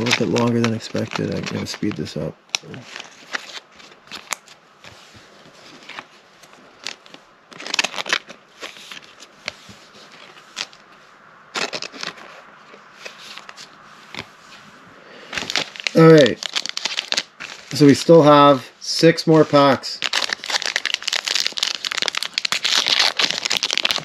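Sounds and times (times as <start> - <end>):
cards sliding into plastic sleeves: 11.6 - 14.6.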